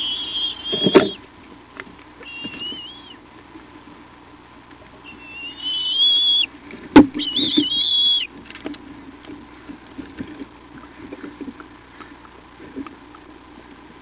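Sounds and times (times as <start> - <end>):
eagle whining calls: 0.0 - 1.2, 2.2 - 3.2, 5.0 - 6.5, 7.1 - 8.4.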